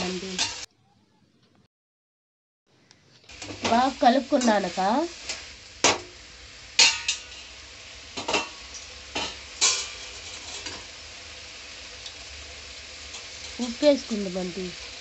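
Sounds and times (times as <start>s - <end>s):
metal skimmer scraping a pan: 8.2s - 10.9s.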